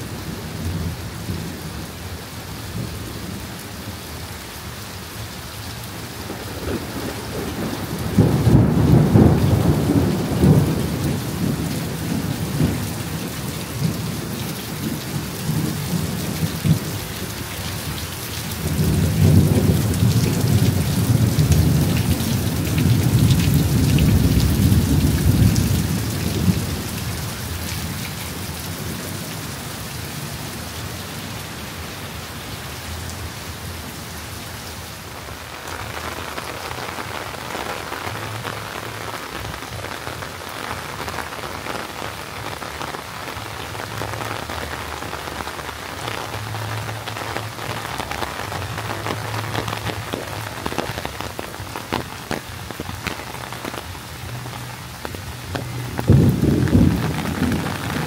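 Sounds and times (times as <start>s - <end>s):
heavy rain: 0.0s - 58.0s
low rumble of thunder: 6.1s - 29.6s, 55.5s - 58.0s.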